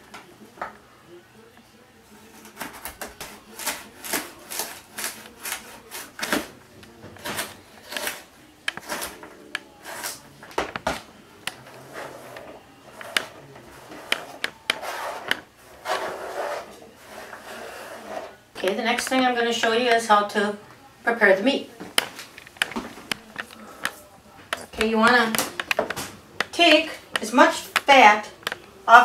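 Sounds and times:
knife chopping on cutting board: 2.6 - 6.5
scraping food off board: 11.6 - 18.4.

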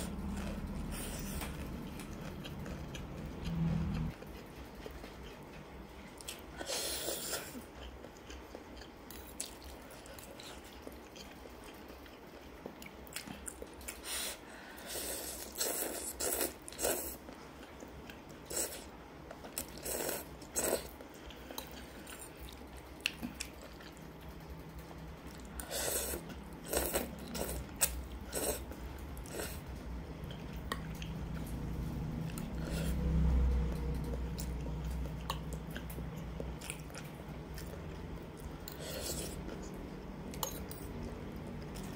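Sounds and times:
low rumble: 0.0 - 4.2
chewing and eating: 0.0 - 41.9.

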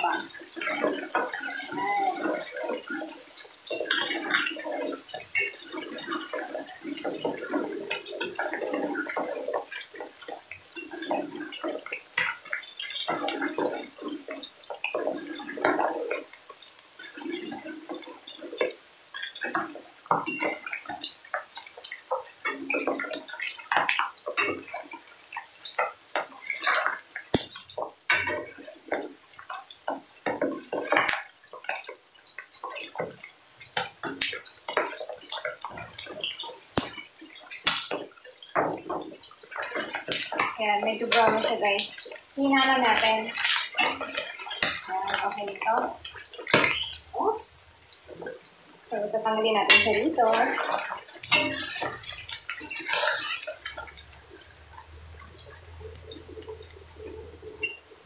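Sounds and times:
pork frying in hot oil: 0.0 - 58.0
popping of spattering fat: 36.8 - 38.0.

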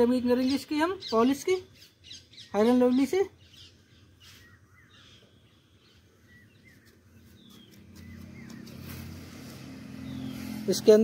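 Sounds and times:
small birds chirping: 0.0 - 11.0
low engine hum: 6.7 - 11.0.

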